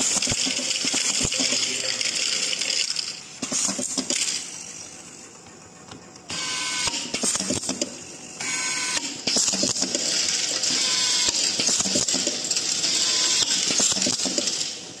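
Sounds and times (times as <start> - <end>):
screwdriver motor whirring: 8.4 - 9.1, 10.7 - 11.5, 12.8 - 13.6.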